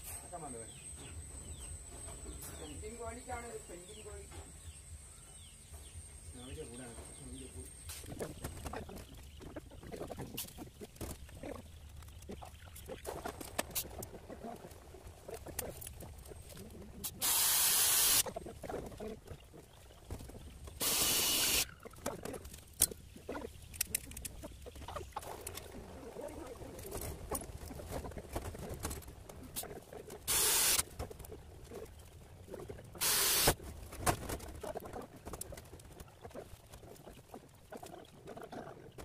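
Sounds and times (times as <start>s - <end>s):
cordless drill driving screws: 17.2s - 18.2s, 20.8s - 21.6s, 30.3s - 30.8s.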